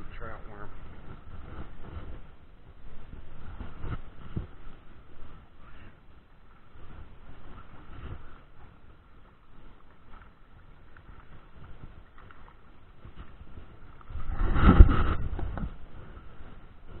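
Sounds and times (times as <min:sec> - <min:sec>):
low rumble on microphone: 0:00.0 - 0:17.0.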